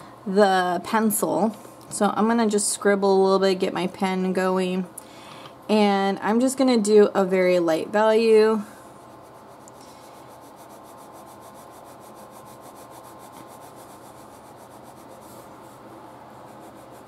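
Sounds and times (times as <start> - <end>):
pen scratching on paper: 9.2 - 17.0.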